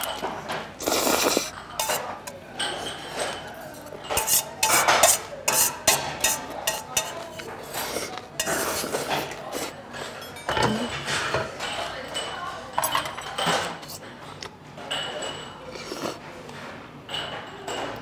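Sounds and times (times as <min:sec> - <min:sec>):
noodles slurped: 0:00.8 - 0:01.6
chopsticks clinking on metal bowl: 0:01.5 - 0:14.0.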